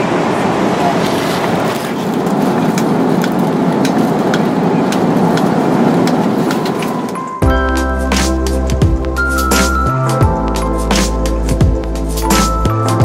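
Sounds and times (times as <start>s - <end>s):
airliner cabin roar: 0.0s - 10.1s.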